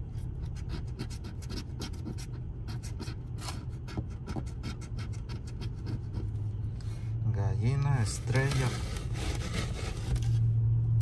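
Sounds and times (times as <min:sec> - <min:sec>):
steady low hum: 0:00.0 - 0:11.0
coin scratching lottery ticket: 0:00.4 - 0:06.3.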